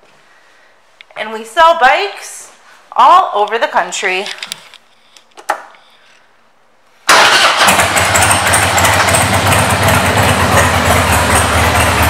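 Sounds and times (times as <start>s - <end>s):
motorcycle engine idling: 7.3s - 12.0s.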